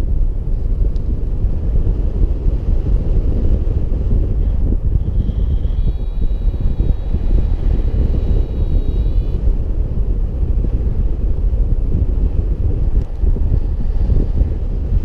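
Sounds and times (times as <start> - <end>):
wind buffeting microphone: 0.0 - 15.0
faint steady high tone: 4.4 - 9.7.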